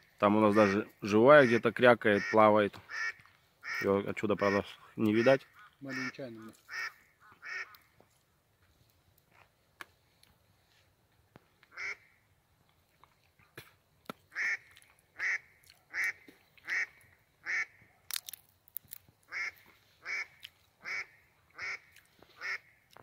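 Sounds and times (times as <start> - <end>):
duck quacking: 0.5 - 7.8, 11.7 - 12.0, 14.3 - 17.8, 19.3 - 22.7.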